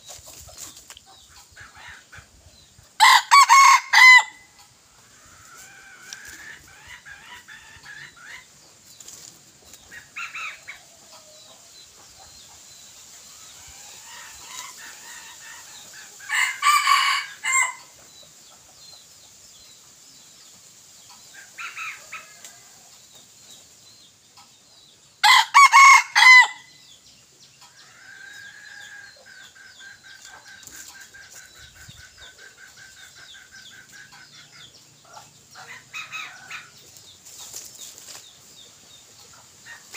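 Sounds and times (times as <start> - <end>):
rooster crowing: 3.0 - 4.5, 16.3 - 17.8, 25.2 - 26.7
chicken clucking: 4.5 - 12.8, 27.4 - 39.9.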